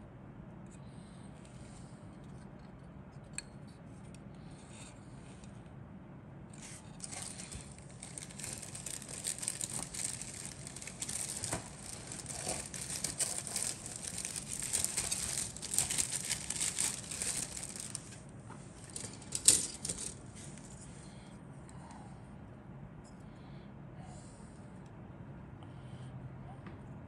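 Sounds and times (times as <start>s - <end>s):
plastic bag crinkling: 6.9s - 20.8s.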